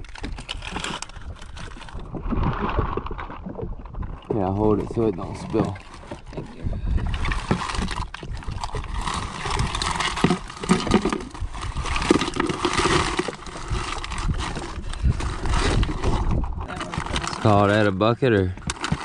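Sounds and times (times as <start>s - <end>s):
steady low rumble: 13.3s - 17.3s.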